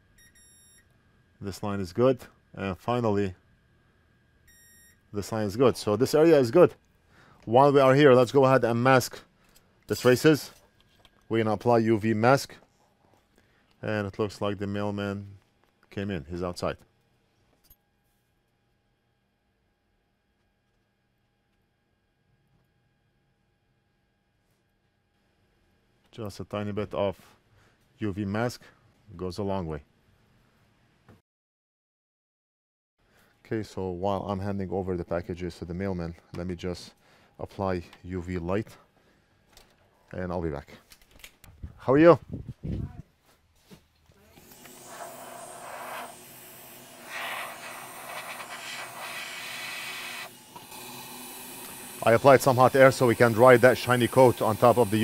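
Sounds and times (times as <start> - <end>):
electrical hum: 0.0 - 17.6, 44.1 - 55.0
hot air blower hissing: 44.3 - 55.0.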